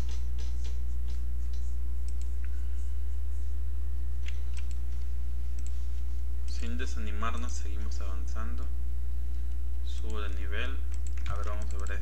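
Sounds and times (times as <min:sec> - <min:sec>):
computer mouse clicks: 0:00.0 - 0:02.6, 0:04.2 - 0:04.8, 0:05.6 - 0:05.8, 0:09.5 - 0:12.0
low electrical hum: 0:00.0 - 0:12.0.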